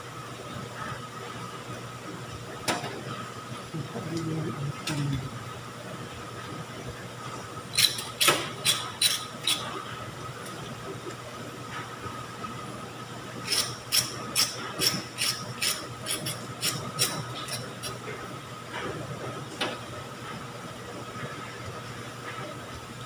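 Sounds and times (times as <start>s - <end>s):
oil sizzling and spitting: 13.4s - 18.0s.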